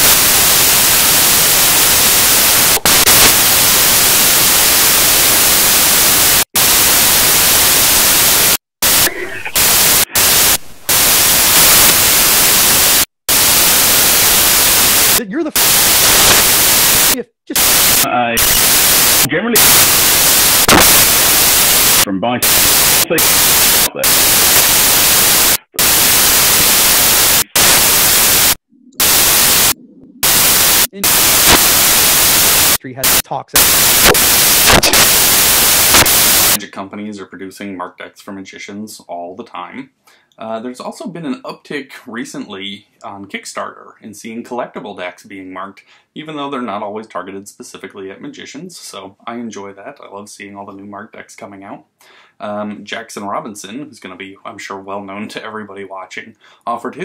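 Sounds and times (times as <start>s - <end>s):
loud static hiss: 0.0s - 36.6s
man talking: 15.2s - 15.8s, 17.0s - 18.5s, 19.2s - 19.8s, 22.0s - 24.4s, 30.9s - 31.4s, 32.8s - 33.8s, 36.6s - 57.0s.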